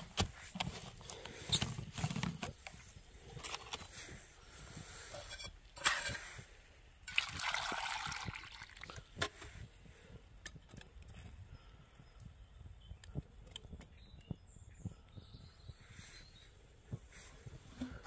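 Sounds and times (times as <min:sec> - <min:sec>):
water pouring into metal pot: 0:07.1 - 0:09.0.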